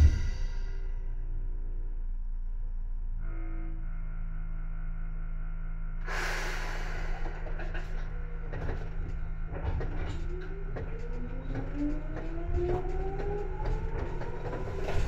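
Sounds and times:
train equipment humming: 0:00.0 - 0:01.1, 0:06.0 - 0:15.0
compressed air hiss: 0:06.1 - 0:07.2
clunks and knocks: 0:07.2 - 0:15.0.

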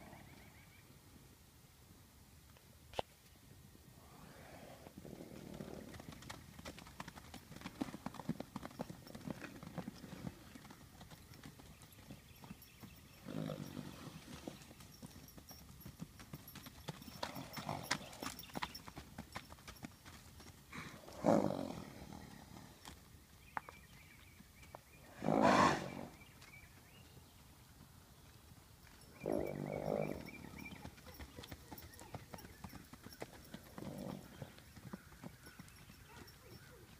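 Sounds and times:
horse hooves thudding on dirt: 0:05.3 - 0:21.8, 0:25.8 - 0:36.9.

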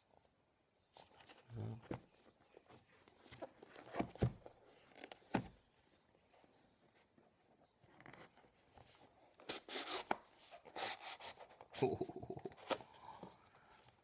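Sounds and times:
cardboard rustling and scraping: 0:01.0 - 0:05.7.

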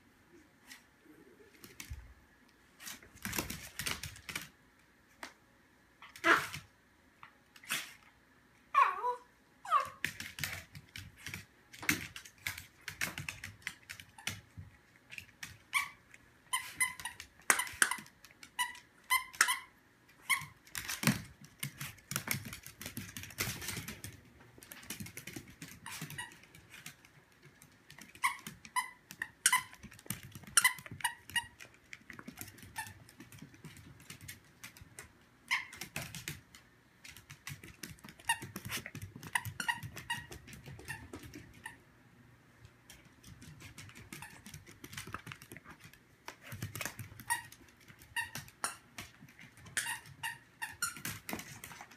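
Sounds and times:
squeaky toy squeaking: 0:18.6 - 0:20.6, 0:28.2 - 0:29.8, 0:39.2 - 0:41.0.

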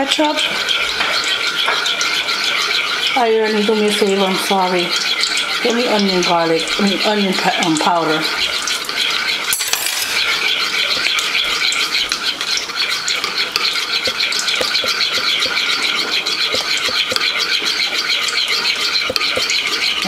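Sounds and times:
metal spoon stirring in bowl: 0:08.5 - 0:20.0.

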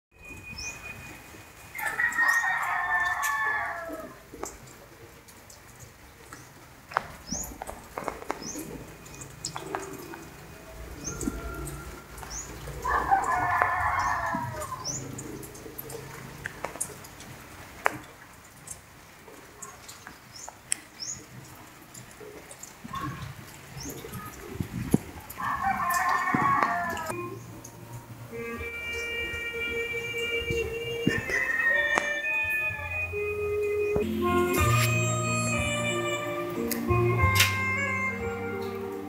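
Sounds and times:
rooster crowing: 0:01.7 - 0:04.2, 0:10.8 - 0:15.0, 0:25.4 - 0:27.2, 0:30.5 - 0:33.0
small birds chirping: 0:04.4 - 0:13.0, 0:19.6 - 0:25.4.

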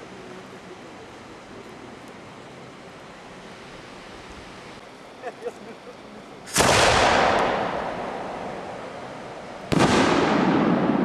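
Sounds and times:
fireworks bangs echoing: 0:06.5 - 0:11.0.

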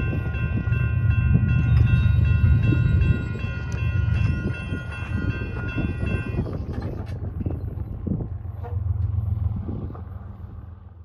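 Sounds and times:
electronic crossing bells ringing: 0:00.0 - 0:06.7
low rumble: 0:00.0 - 0:11.0.

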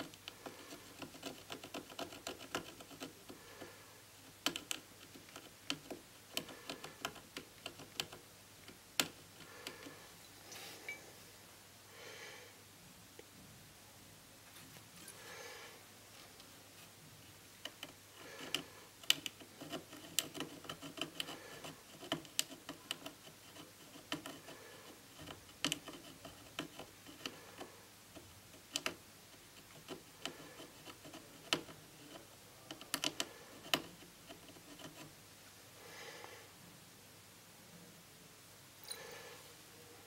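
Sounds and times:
metal tool scratching cable: 0:00.0 - 0:03.7, 0:17.7 - 0:29.0, 0:29.6 - 0:35.1.

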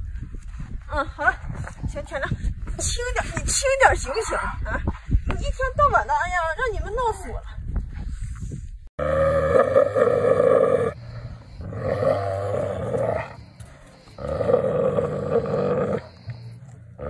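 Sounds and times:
wolves growling: 0:09.0 - 0:16.3.

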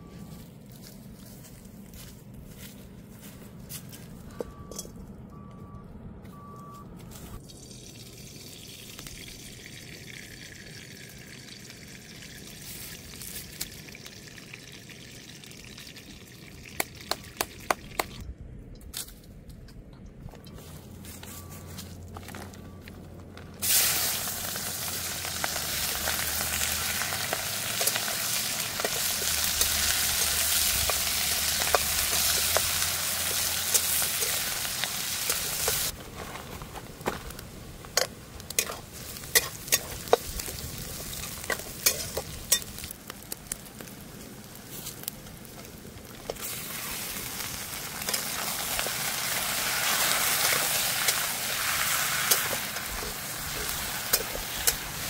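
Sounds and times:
onions sizzling in hot oil: 0:08.2 - 0:16.8, 0:23.6 - 0:36.0, 0:37.9 - 0:55.0.

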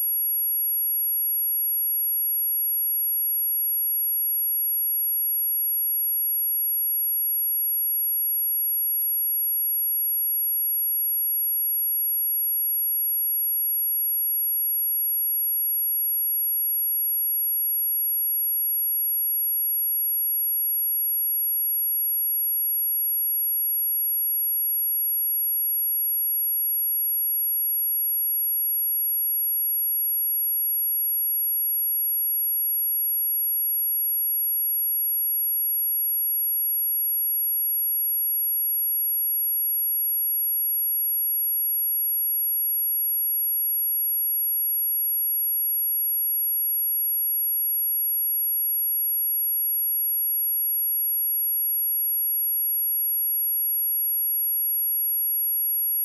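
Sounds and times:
high-pitched sine test tone: 0:00.0 - 0:01.8, 0:15.9 - 0:56.0.

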